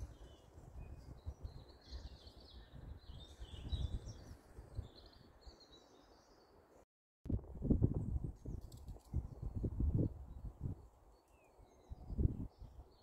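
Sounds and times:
birds singing and chirping: 0:00.0 - 0:06.5.

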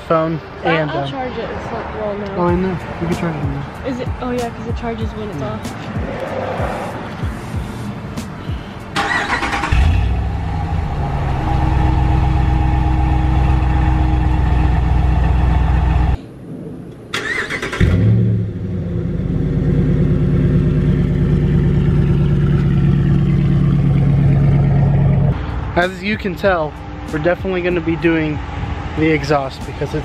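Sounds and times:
engine revving: 0:02.5 - 0:16.2, 0:17.2 - 0:25.5
truck engine starting and idling: 0:07.2 - 0:16.2, 0:17.1 - 0:30.0
engine cranking: 0:09.0 - 0:10.2, 0:17.2 - 0:18.1.

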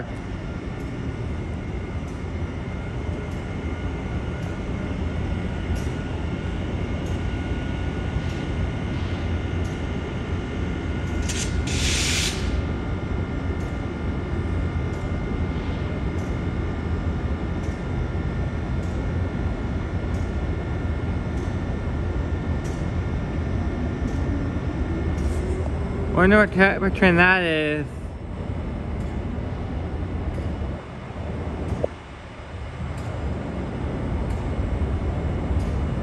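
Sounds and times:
idling trains rumbling: 0:00.0 - 0:18.6
air brake hiss: 0:11.3 - 0:12.6.

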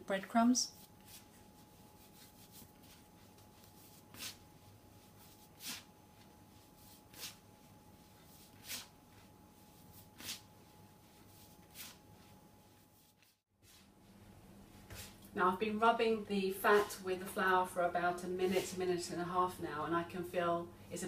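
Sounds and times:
fingertips rubbing flour rustling: 0:00.6 - 0:13.9.

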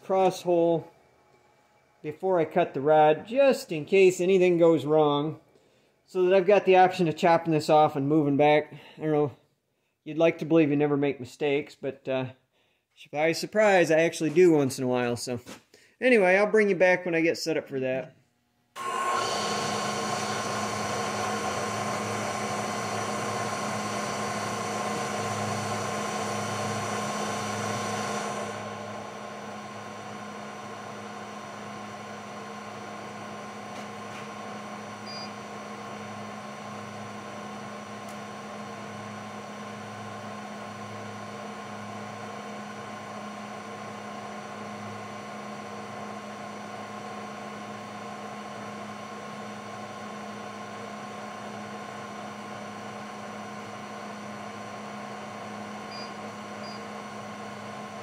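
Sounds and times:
milling machine humming: 0:18.8 - 0:58.0.

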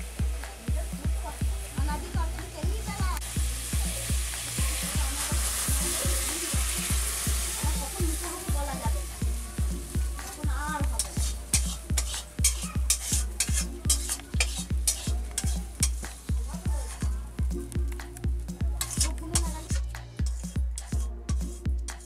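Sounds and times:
background music with low beat: 0:00.0 - 0:22.0
food sizzling in a wok: 0:00.0 - 0:22.0
metal spatula scraping a wok: 0:10.2 - 0:17.0, 0:18.8 - 0:22.0.

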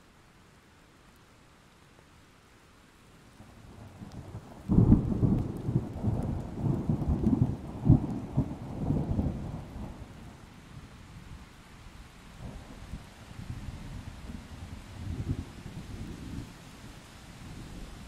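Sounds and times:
thunder rumbling and cracking: 0:04.6 - 0:10.1.

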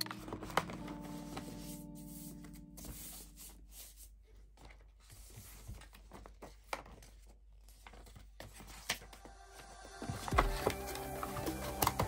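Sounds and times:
cardboard packaging rustling: 0:00.0 - 0:09.3.

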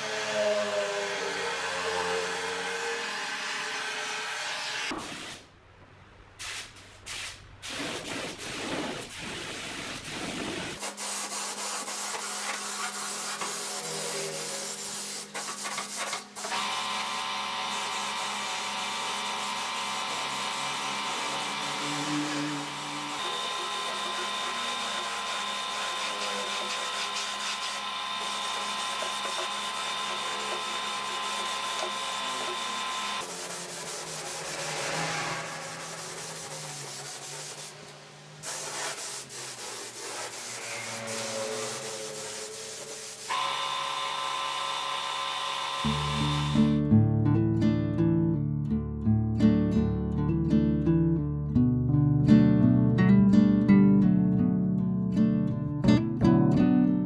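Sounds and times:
spray gun hissing: 0:06.4 - 0:16.6, 0:21.2 - 0:31.5, 0:32.2 - 0:43.9.

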